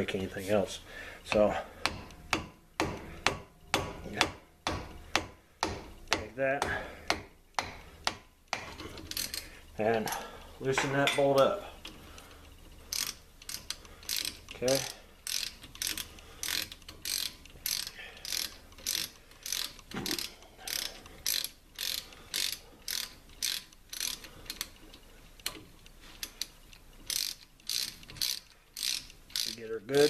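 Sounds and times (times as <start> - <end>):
socket ratchet clicking: 12.9 - 24.8, 26.2 - 29.6.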